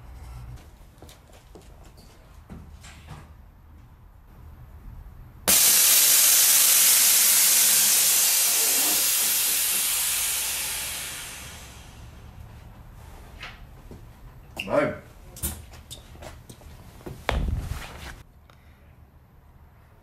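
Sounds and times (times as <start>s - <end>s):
air suspension hissing: 5.5s - 12.5s.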